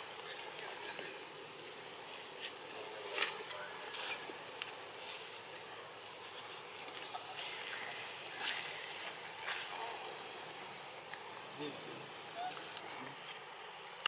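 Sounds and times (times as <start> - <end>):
insects hissing: 0.0 - 14.0.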